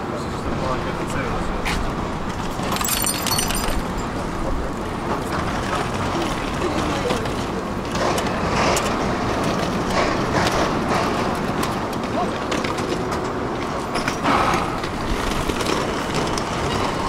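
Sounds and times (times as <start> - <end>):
tram passing close by: 0.0 - 2.8, 3.8 - 17.0
street traffic noise: 0.0 - 17.0
pedestrian footsteps: 0.2 - 17.0
faint voices: 4.2 - 8.7.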